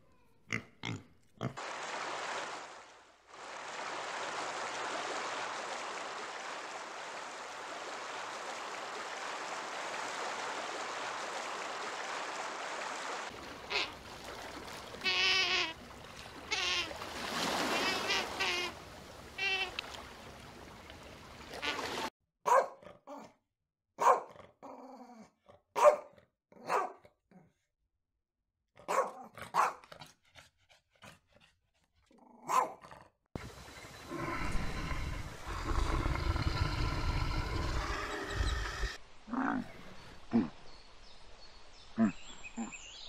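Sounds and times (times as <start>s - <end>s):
dog barking: 22.4s - 23.3s, 24.0s - 24.5s, 25.8s - 27.1s, 28.8s - 29.9s, 32.4s - 32.8s.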